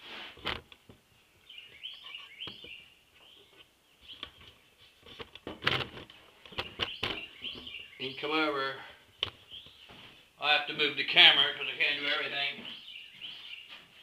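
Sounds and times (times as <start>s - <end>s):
small birds twittering: 1.1s - 5.4s, 6.0s - 14.0s.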